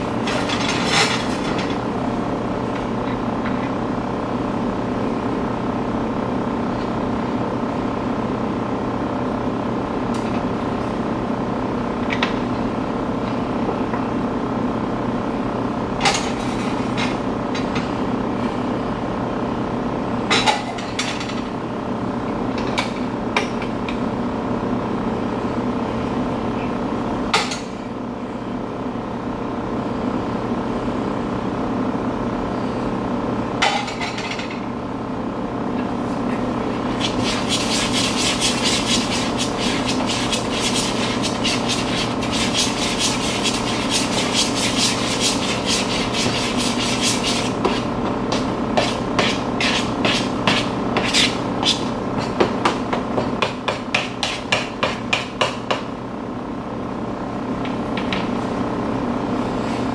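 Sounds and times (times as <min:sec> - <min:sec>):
steady hum: 0:20.8 - 0:59.9
utensil beating against mixing bowl: 0:36.9 - 0:55.6.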